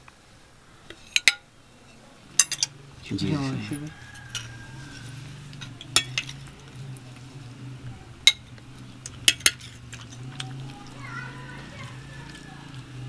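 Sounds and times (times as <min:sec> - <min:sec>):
steady low hum: 0:00.0 - 0:13.0
metal spoon clinking on ceramic: 0:02.4 - 0:02.8, 0:04.1 - 0:04.5, 0:05.5 - 0:06.6, 0:08.2 - 0:10.6.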